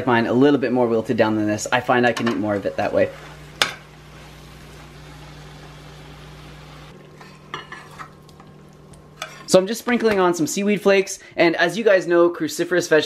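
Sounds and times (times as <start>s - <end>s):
fork clinking on saucepan: 7.2s - 8.2s, 9.2s - 9.5s
food scraped from pan into bowl: 7.2s - 9.6s.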